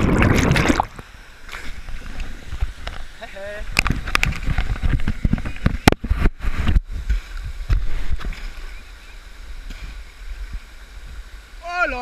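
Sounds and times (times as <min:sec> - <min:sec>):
water thumping on camera: 0:00.0 - 0:08.7
water sloshing and splashing: 0:00.0 - 0:08.8.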